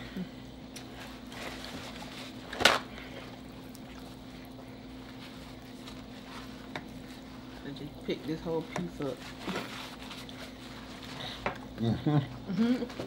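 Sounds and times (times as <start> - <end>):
faint steady hum: 0.0 - 13.0
paper rustling: 8.6 - 11.4
paper towel ripping: 9.0 - 11.2.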